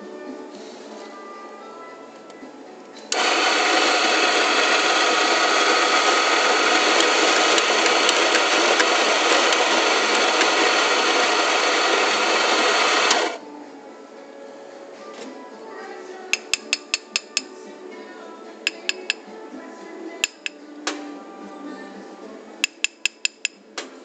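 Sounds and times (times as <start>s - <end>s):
electric coffee grinder grinding: 3.1s - 13.4s, 16.4s - 17.5s, 18.7s - 19.2s, 20.2s - 20.5s, 22.6s - 23.5s.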